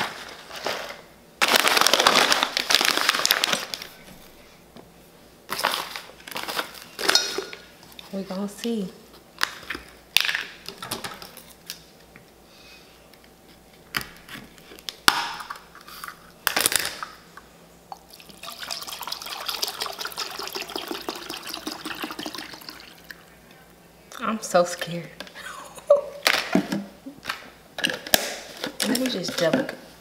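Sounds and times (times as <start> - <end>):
liquid pouring into metal bowl: 18.1 - 23.2.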